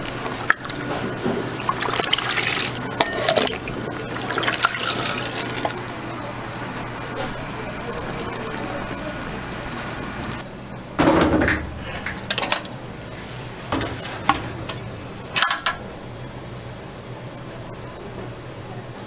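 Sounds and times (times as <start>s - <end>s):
kitchen background hum: 0.0s - 19.0s
metal pots knocking and clattering: 3.0s - 3.6s.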